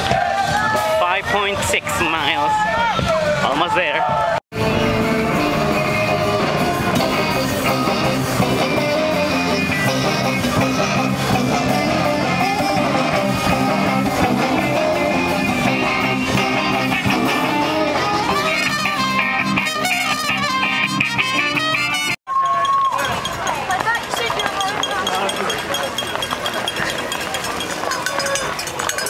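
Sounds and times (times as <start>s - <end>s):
live band playing guitar music: 4.6s - 22.2s.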